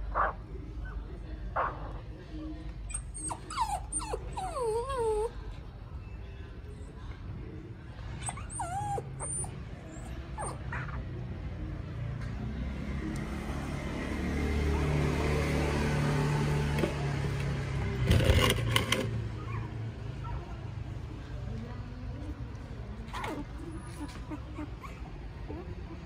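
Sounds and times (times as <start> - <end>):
puppy whimpering: 2.9 - 5.5, 8.2 - 11.0, 18.1 - 20.5, 23.1 - 26.0
short clatter: 18.0 - 19.2.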